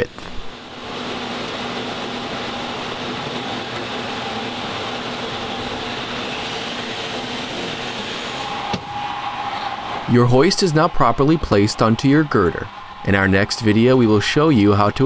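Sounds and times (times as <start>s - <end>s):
mechanical hum and hiss: 0.0s - 15.0s.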